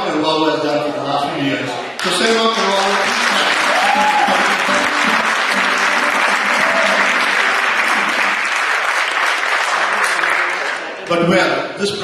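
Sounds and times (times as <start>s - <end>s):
crowd applauding: 2.0s - 11.1s.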